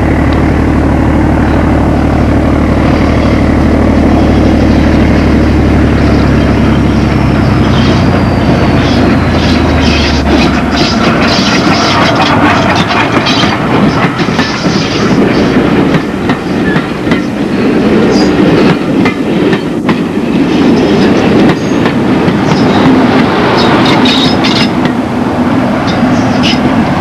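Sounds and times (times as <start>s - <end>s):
locomotive engine hum: 0.0s - 27.0s
train wheels clattering on rail joints: 7.5s - 25.0s, 25.7s - 27.0s.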